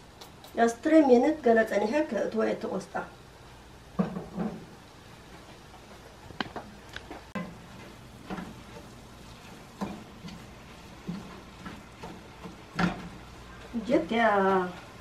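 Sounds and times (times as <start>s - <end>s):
spoon knocking and scraping pot: 7.3s - 8.9s, 9.7s - 13.2s.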